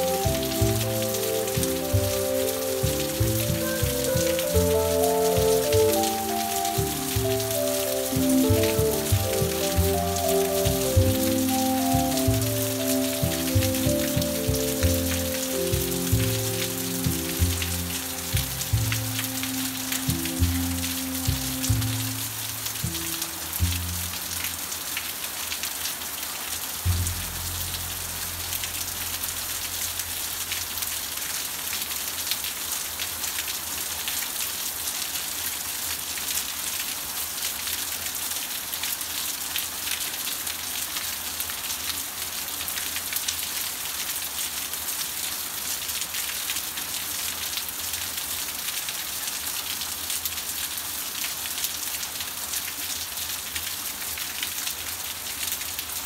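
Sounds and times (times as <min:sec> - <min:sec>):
deep low note: 0:00.0 - 0:24.8, 0:26.9 - 0:31.1
steady rain falling: 0:00.0 - 0:56.0.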